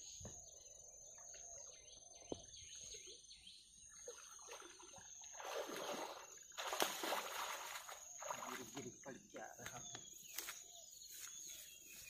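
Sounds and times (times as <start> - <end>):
faint bird chirps: 0.0 - 6.6, 7.8 - 12.0
water splashing from wading: 3.9 - 9.1.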